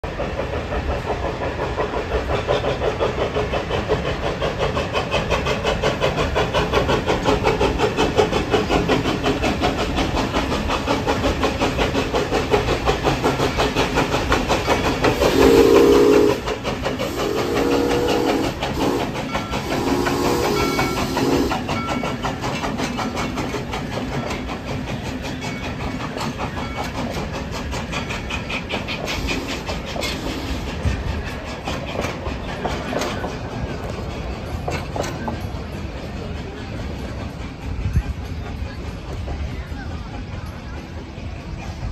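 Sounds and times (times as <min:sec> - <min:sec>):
hiss of steam: 0:00.0 - 0:41.9
steam locomotive chuffing: 0:00.0 - 0:41.9
cars rolling on rails: 0:00.1 - 0:41.9
steam whistle blasts: 0:15.2 - 0:21.7, 0:29.3 - 0:30.7.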